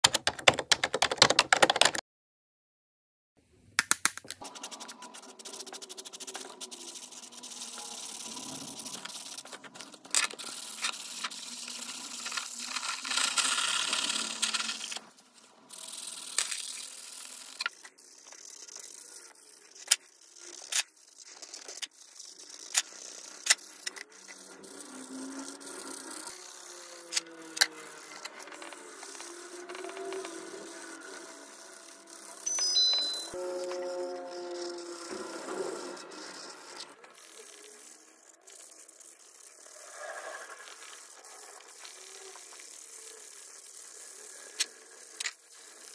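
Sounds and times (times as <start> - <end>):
marker and page clicks: 0.0 - 2.0, 3.8 - 15.1, 15.7 - 33.3
marker scratching on paper: 4.4 - 45.9.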